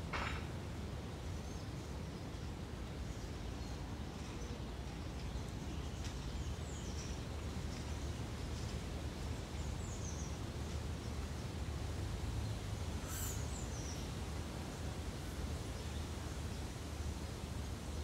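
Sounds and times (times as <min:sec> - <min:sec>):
low outdoor rumble: 0:00.0 - 0:18.0
faint bird chirps: 0:13.0 - 0:14.1.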